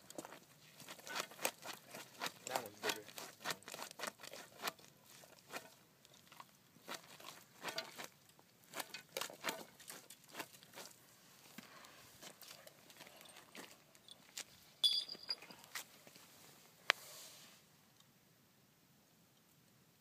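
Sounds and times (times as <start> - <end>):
taps and scrapes on pavement: 0.1 - 5.7.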